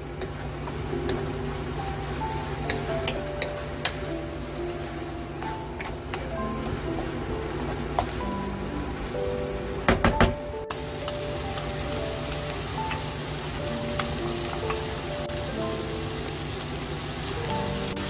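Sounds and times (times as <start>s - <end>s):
food sizzling in a pan: 0.0s - 10.0s, 10.6s - 18.0s
spatula knocking on pan: 2.6s - 4.1s, 9.9s - 10.4s.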